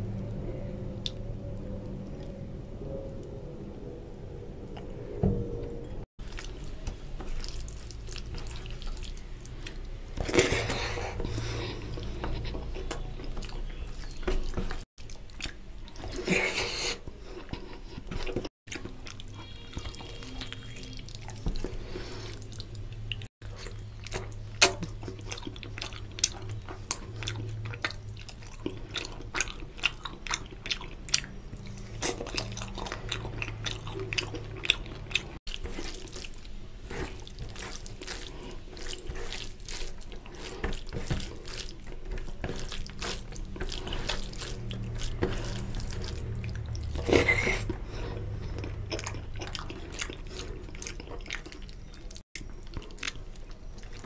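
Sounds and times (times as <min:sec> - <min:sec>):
low steady hum: 0:00.0 - 0:54.0
chewing and lip smacks: 0:01.0 - 0:01.2, 0:06.2 - 0:16.3, 0:17.4 - 0:54.0
fingers squelching food: 0:24.0 - 0:54.0.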